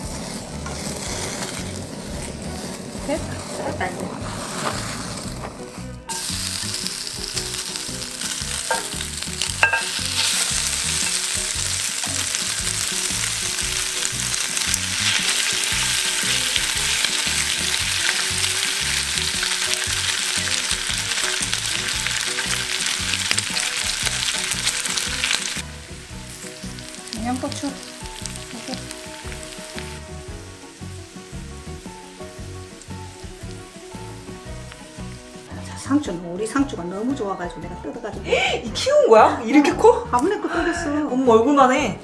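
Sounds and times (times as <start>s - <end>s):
spatula scraping pan: 0.0s - 6.3s
meat sizzling on griddle: 0.0s - 35.9s.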